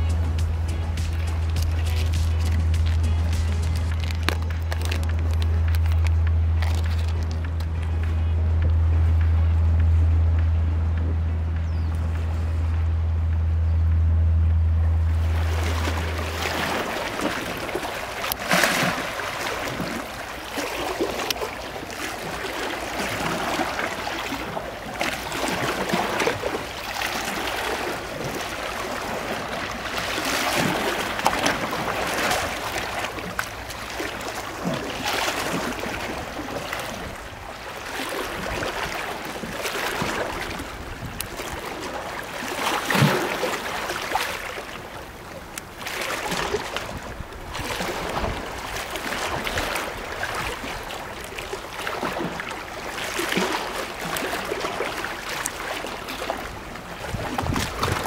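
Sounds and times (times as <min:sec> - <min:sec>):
seawater splashing among concrete blocks: 0:00.0 - 0:58.0.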